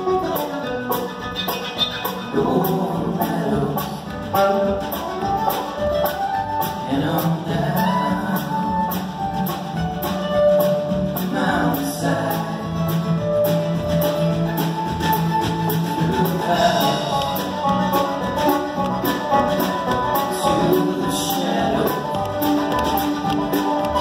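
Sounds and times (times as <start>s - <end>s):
acoustic guitar: 0.0s - 24.0s
banjo: 0.0s - 24.0s
mandolin: 0.0s - 24.0s
upright bass: 0.0s - 24.0s
person singing: 2.2s - 4.9s, 6.6s - 9.6s, 11.2s - 13.2s, 15.8s - 24.0s.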